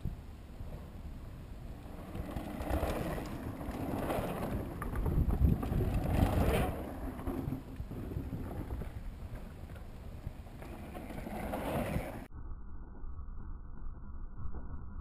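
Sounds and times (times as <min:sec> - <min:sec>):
wind buffeting microphone: 0:00.0 - 0:12.3
bike tyres crunching over dirt: 0:01.8 - 0:12.3.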